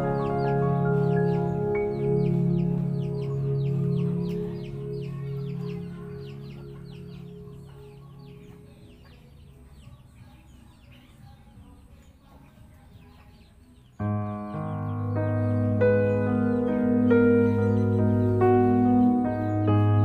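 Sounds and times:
high falling bird chirps: 0:00.0 - 0:08.9
background music: 0:00.0 - 0:11.0, 0:13.9 - 0:20.0.

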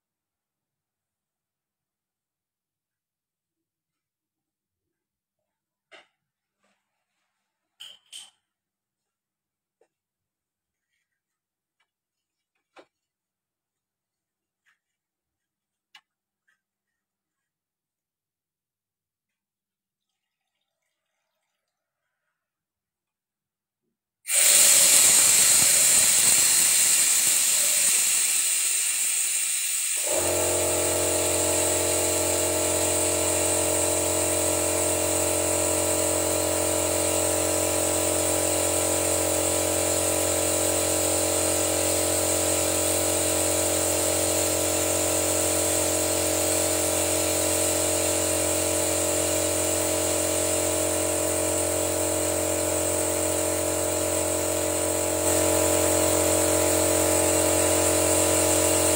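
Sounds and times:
steady machine hum: 0:24.3 - 0:36.8
compressed air hissing: 0:24.3 - 0:58.9.

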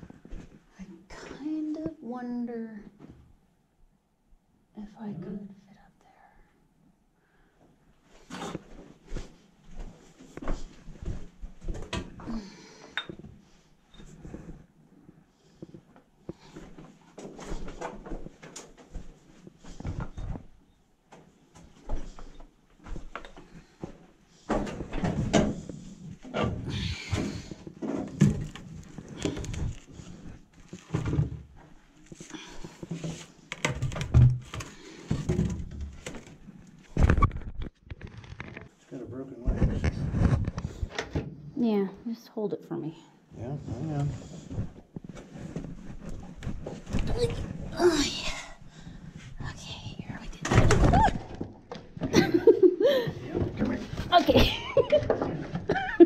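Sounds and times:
clothing rustling: 0:27.9 - 0:39.0, 0:43.8 - 0:48.4.

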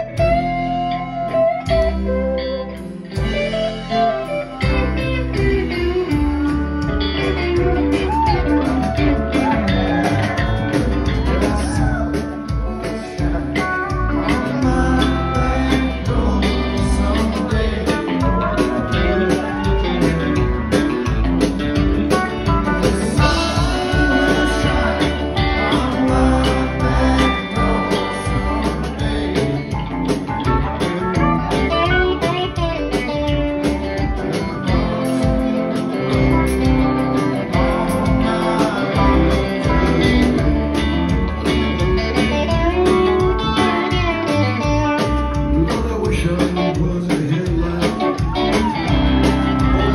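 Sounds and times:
drums: 0:00.0 - 0:49.9
electric guitar lead lines: 0:00.0 - 0:49.9
upright bass: 0:00.0 - 0:49.9.

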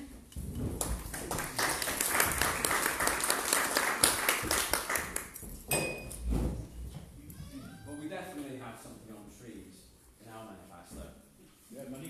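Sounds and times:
audience applauding: 0:01.1 - 0:05.4.

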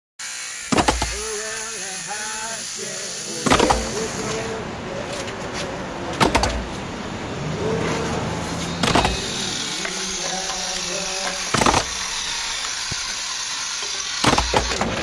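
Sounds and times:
steady hiss: 0:00.3 - 0:04.9
sharp knocks: 0:00.7 - 0:01.2, 0:06.2 - 0:06.7, 0:08.8 - 0:09.2
wooden boards clattering: 0:11.5 - 0:12.0, 0:14.2 - 0:15.0.

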